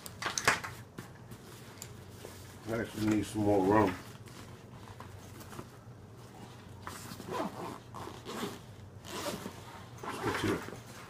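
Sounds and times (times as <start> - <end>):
nylon fabric rustling: 1.3 - 11.0
zipper rasping open: 7.1 - 10.7.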